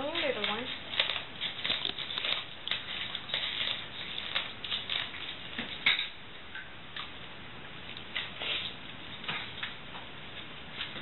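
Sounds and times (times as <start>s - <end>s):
scratchy rustles and clicks: 0.0s - 6.0s
puppies scuffling in play: 0.0s - 7.2s, 7.8s - 11.0s.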